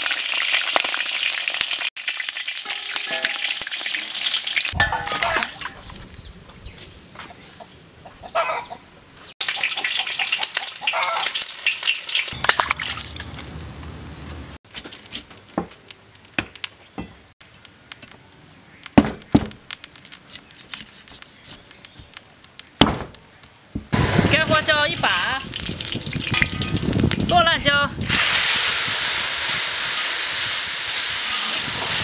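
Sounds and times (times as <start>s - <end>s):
fried meat hissing in water: 28.0s - 32.0s.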